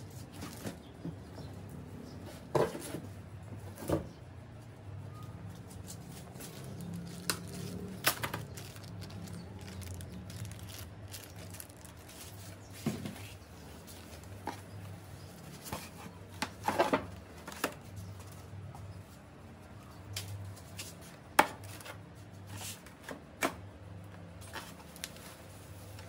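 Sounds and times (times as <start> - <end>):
packaging knocking and crackling: 6.6 - 13.2.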